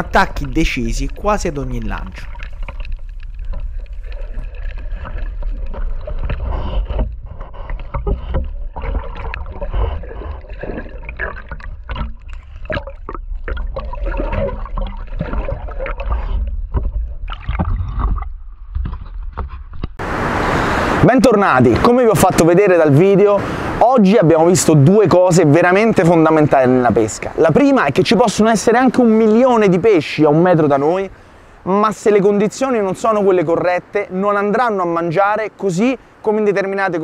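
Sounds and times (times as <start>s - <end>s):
low underwater rumble: 0.0s - 20.0s
muffled underwater sloshing: 0.0s - 21.0s.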